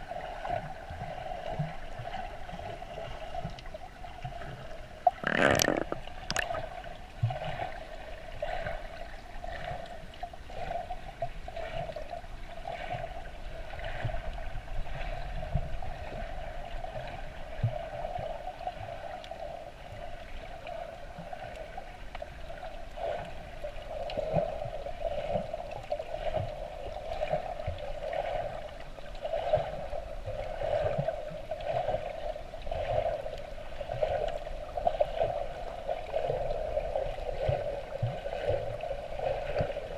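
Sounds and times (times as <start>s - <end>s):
light crackles underwater: 0.0s - 39.9s
soft thumps of moving water: 0.5s - 7.7s.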